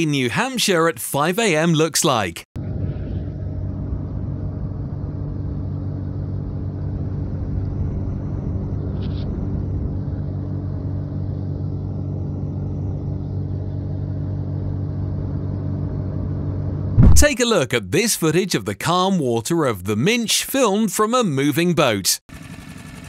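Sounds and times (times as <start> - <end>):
motorboat engine humming: 2.6 - 17.1, 22.4 - 23.0.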